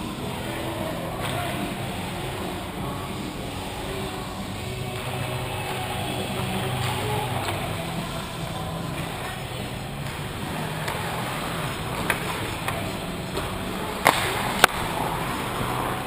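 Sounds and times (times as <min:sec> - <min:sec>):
arena background: 0:00.0 - 0:16.0
hockey sticks clacking on puck: 0:04.9 - 0:16.0.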